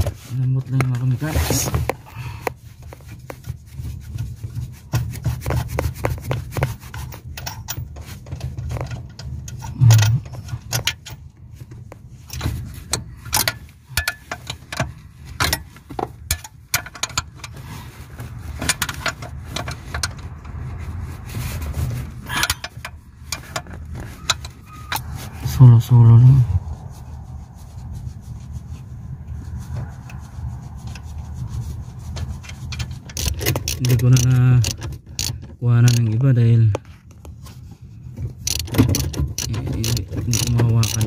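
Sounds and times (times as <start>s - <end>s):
wrench metallic clicks and scraping: 0.8s - 20.7s, 21.7s - 25.7s, 30.8s - 36.7s, 38.2s - 41.0s.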